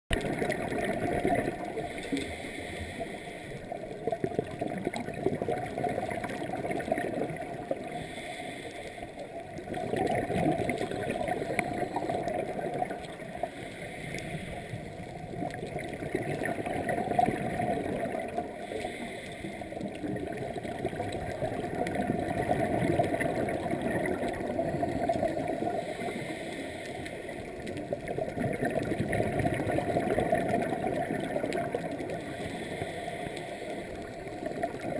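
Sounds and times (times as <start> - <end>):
bubbles gurgling underwater: 0.1 - 8.2, 9.2 - 26.4, 27.0 - 34.9
diver regulator breathing: 1.5 - 4.1, 7.7 - 9.8, 10.6 - 15.5, 17.8 - 20.1, 25.1 - 27.6, 31.6 - 34.9.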